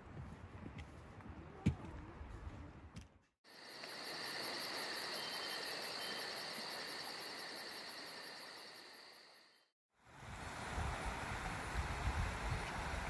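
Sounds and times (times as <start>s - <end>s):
insects trilling: 3.5s - 9.7s.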